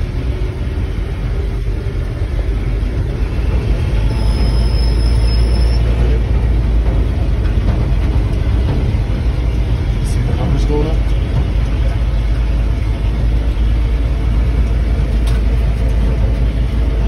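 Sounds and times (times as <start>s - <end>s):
truck engine rumbling inside cab: 0.0s - 17.0s
thin high squeal: 4.1s - 6.2s.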